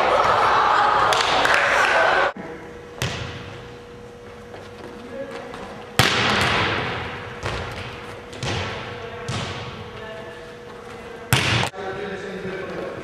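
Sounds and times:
ball bouncing in gym: 0:02.9 - 0:10.1, 0:10.8 - 0:11.8
volleyball spike smack: 0:06.0 - 0:07.6.

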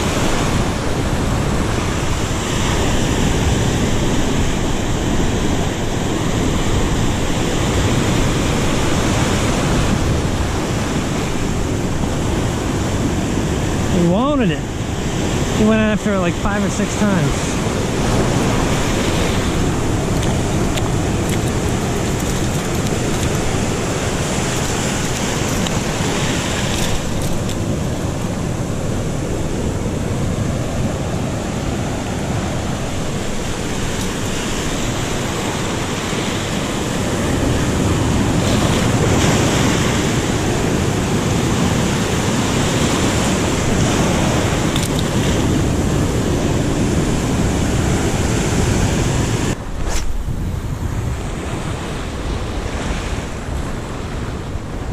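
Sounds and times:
surf washing around rocks: 0:00.0 - 0:54.9
wind buffeting microphone: 0:00.0 - 0:54.9.

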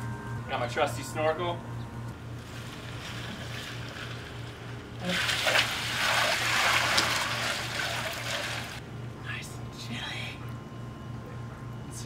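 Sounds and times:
low pulsing hum: 0:00.0 - 0:12.0
water splashing and streaming: 0:02.6 - 0:08.8.

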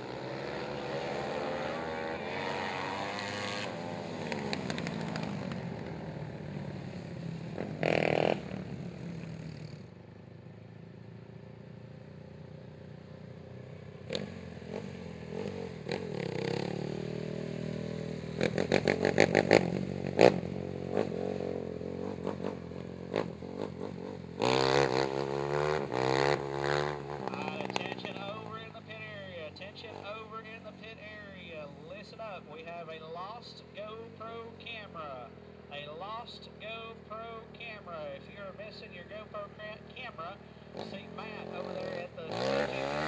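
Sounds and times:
quad engines revving: 0:00.0 - 0:09.8, 0:14.0 - 0:43.0.

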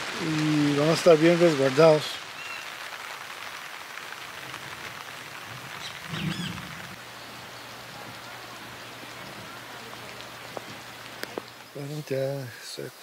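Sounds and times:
rain falling: 0:00.0 - 0:13.0
short chirping call: 0:05.8 - 0:06.8.

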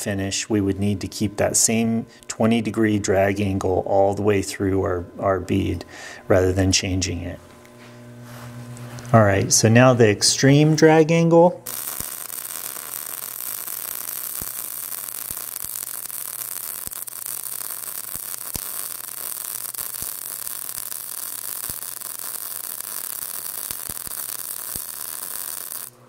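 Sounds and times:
welding arc sizzling: 0:11.6 - 0:26.0
welding crackles and pops: 0:11.6 - 0:26.0.

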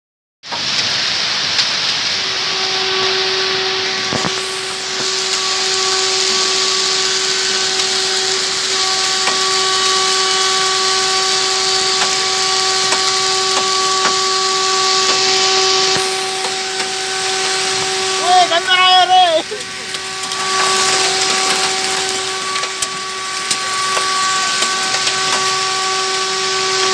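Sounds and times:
hail and heavy rain falling: 0:00.5 - 0:26.9
steady pitched hum: 0:02.1 - 0:26.9
sharp knocks of hail: 0:04.1 - 0:18.0, 0:19.5 - 0:25.7.

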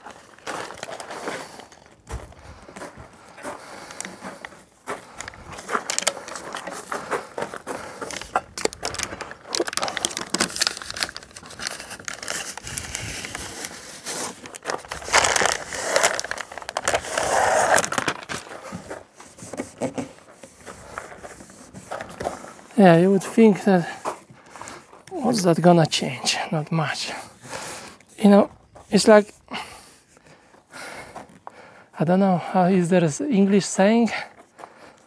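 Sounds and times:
foil insulation crinkling: 0:00.0 - 0:26.0.

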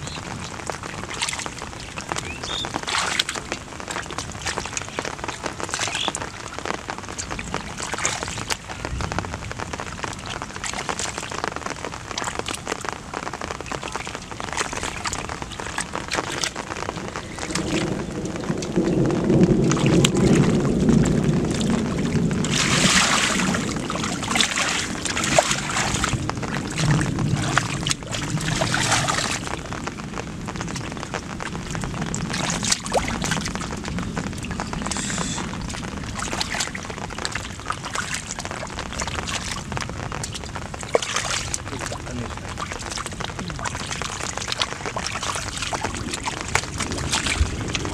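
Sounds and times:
hands splashing in muddy water: 0:22.4 - 0:29.5.

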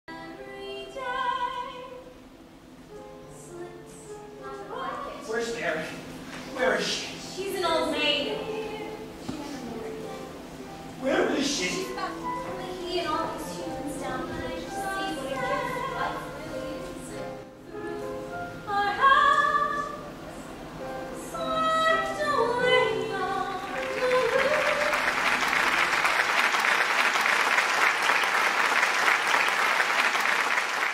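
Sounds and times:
singing with accompaniment: 0:06.4 - 0:25.7
audience applause: 0:23.7 - 0:30.9.

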